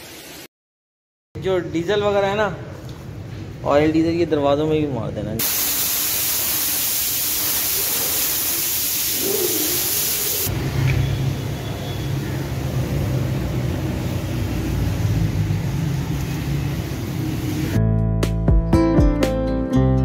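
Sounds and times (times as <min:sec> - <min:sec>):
pressure washer spray hissing: 0:05.4 - 0:10.5.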